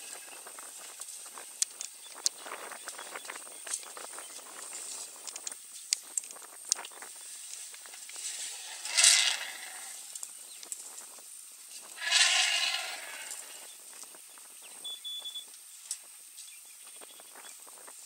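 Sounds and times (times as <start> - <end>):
elephant calf calling: 8.4 - 10.1, 11.9 - 13.7.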